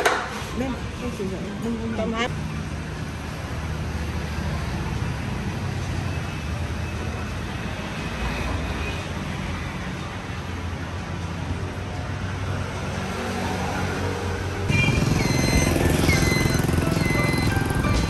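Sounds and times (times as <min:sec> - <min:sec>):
rumble of passing vehicles: 0:00.0 - 0:18.0.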